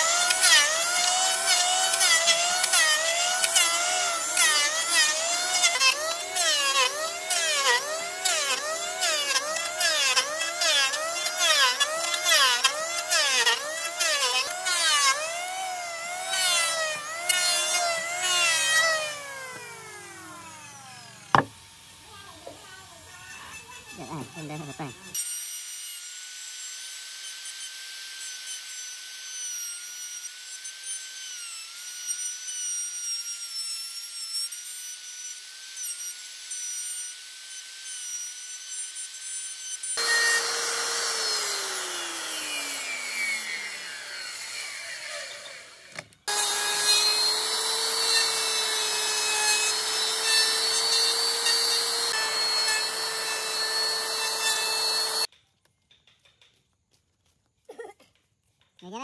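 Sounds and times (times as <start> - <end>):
high-pitched power tool motor: 0.0 - 55.3
power tool grinding hiss: 14.3 - 25.2, 40.0 - 55.3
motor winding down: 15.1 - 25.2, 40.0 - 55.3
wood rasping: 21.1 - 25.2, 40.0 - 55.3.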